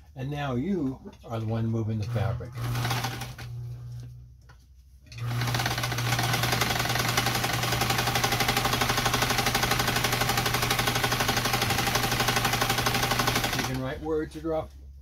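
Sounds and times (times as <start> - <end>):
sewing machine running: 2.0 - 3.8, 5.1 - 14.0.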